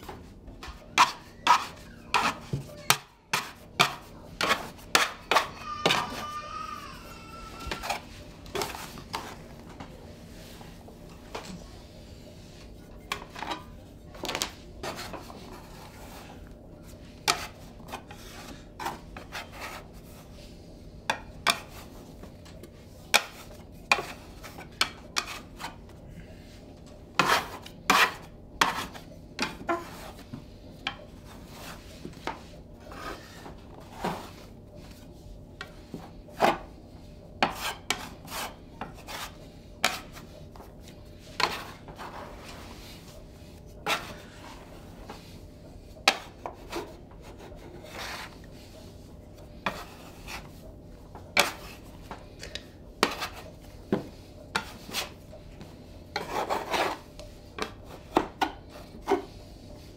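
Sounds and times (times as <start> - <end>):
dough scraper scraping wood: 0.6 - 9.4, 14.8 - 16.4, 17.2 - 20.3, 21.1 - 22.0, 23.0 - 25.8, 27.1 - 30.2, 37.4 - 40.3, 41.3 - 42.7, 43.7 - 44.7, 46.0 - 48.4, 49.5 - 50.6, 51.3 - 52.2, 53.0 - 55.2, 56.1 - 59.4.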